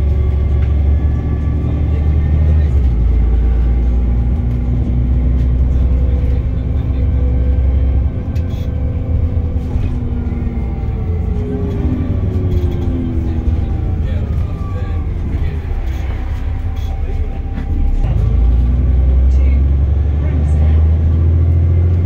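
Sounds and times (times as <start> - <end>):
bus engine drone and whine: 0.0 - 22.0
heavy low rumble: 0.0 - 22.0.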